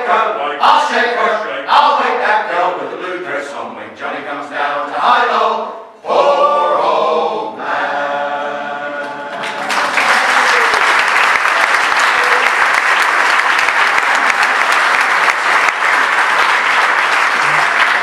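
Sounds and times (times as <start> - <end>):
male choir singing: 0.0 - 10.0
audience applause: 9.3 - 18.0.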